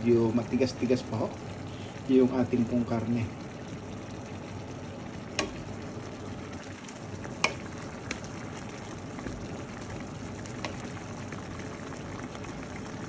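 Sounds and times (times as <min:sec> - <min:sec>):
meat sizzling in a pan: 0:00.0 - 0:13.0
wooden spoon knocking a pan: 0:05.4 - 0:05.7.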